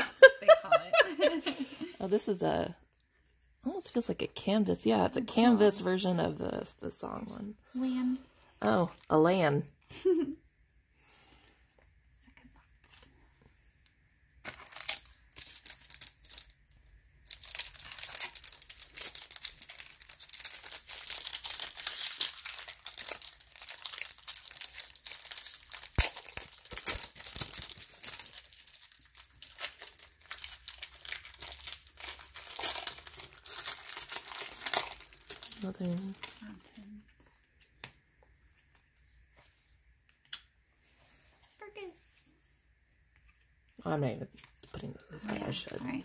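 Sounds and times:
wrappers tearing and crinkling: 14.4s - 36.9s.

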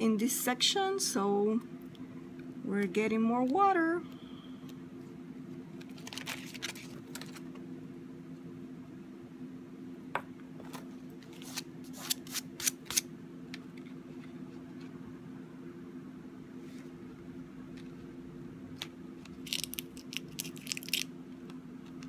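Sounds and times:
paper rustle: 5.8s - 7.5s.

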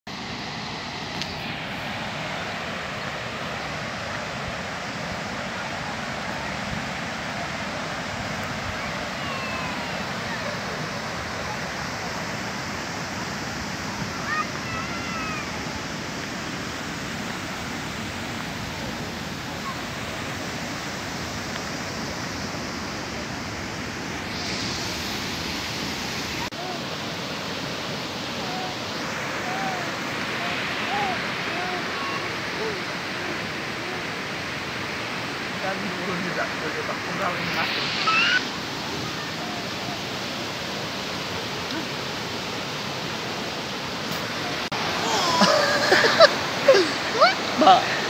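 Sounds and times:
mountain stream rushing: 0.1s - 48.0s
steady rushing noise: 16.7s - 26.8s, 34.6s - 40.6s.

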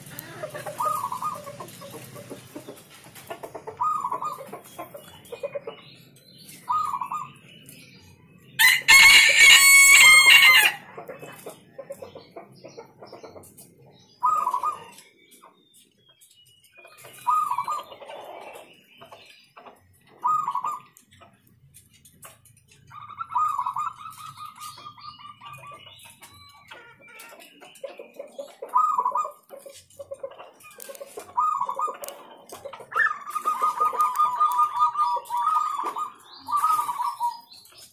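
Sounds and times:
dove cooing: 0.0s - 2.8s, 3.4s - 5.4s, 6.7s - 7.4s, 14.2s - 15.0s, 17.0s - 18.7s, 20.2s - 21.0s, 22.9s - 26.0s, 28.1s - 29.7s, 30.8s - 37.6s
rooster crowing: 8.6s - 10.8s.

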